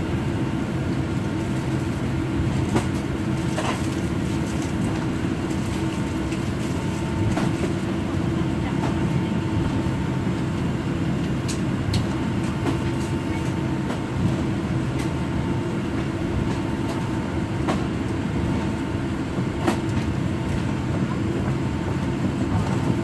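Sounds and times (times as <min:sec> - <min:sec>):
airplane cabin rumble: 0:00.0 - 0:23.0.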